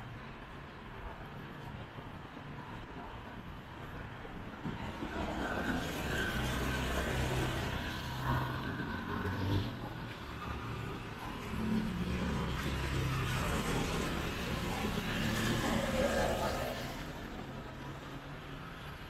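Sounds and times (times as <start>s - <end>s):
vehicles passing close by: 0.0s - 19.0s.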